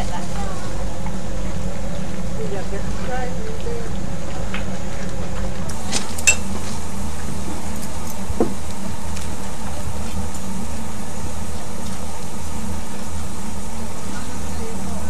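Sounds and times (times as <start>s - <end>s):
steam locomotive hum and hiss: 0.0s - 15.0s.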